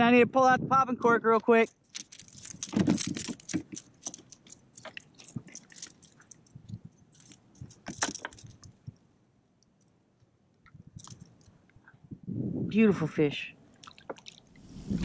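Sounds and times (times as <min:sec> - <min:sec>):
light metallic jingles: 0:01.5 - 0:08.9.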